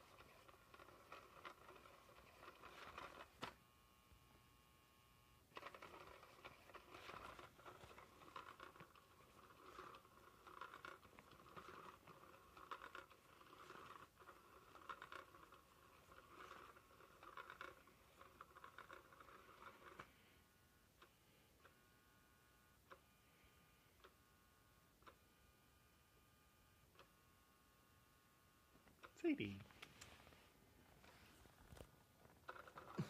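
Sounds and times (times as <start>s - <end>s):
toy motor whirring: 0.0s - 3.6s, 5.5s - 20.1s, 31.0s - 33.0s.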